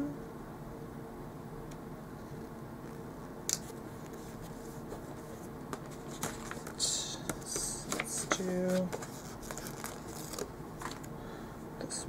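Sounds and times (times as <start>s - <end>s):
low room hum: 0.0s - 12.0s
paper rustle: 3.6s - 11.1s
sticker sheet crinkle: 5.7s - 11.1s.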